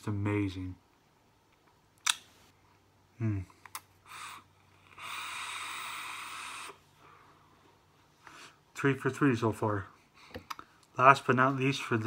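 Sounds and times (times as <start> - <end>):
vape hissing: 4.1 - 6.8.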